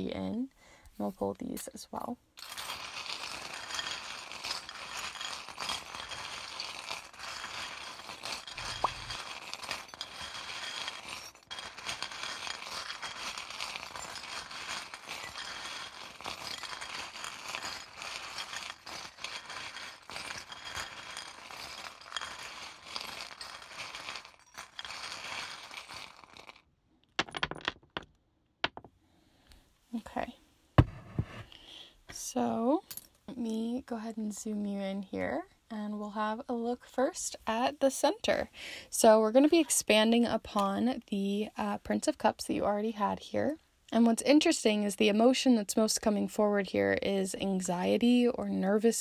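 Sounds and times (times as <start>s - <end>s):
small charms rattling and clinking: 2.4s - 26.6s.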